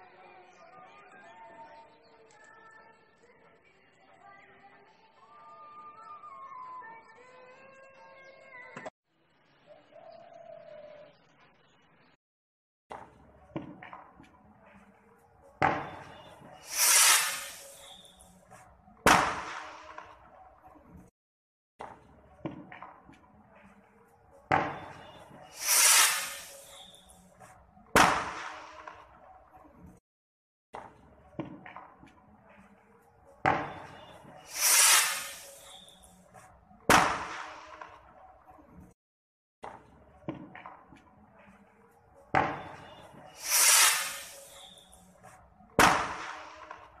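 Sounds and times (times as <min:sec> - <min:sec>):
fireworks banging: 0:12.9 - 0:21.1, 0:21.8 - 0:29.2, 0:33.3 - 0:39.0, 0:39.6 - 0:41.6, 0:42.2 - 0:47.0
fireworks hissing burst: 0:15.7 - 0:18.4, 0:24.8 - 0:27.2, 0:33.7 - 0:36.2, 0:42.6 - 0:45.0.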